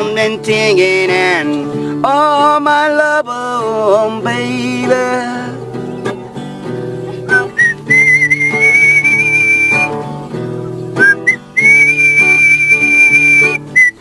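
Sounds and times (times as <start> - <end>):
strummed acoustic guitar: 0.0 - 14.0
whistled melody: 5.7 - 14.0.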